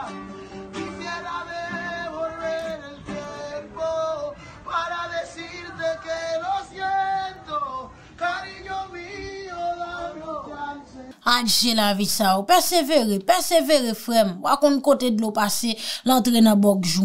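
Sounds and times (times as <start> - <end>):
strummed acoustic guitar: 0.0 - 4.6
man singing: 0.8 - 11.2.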